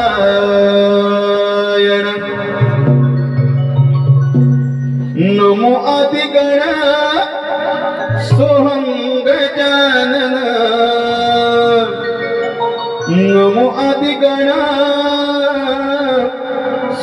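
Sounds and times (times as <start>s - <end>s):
instrumental accompaniment: 0.0s - 17.0s
person singing ornamented melody: 5.1s - 17.0s.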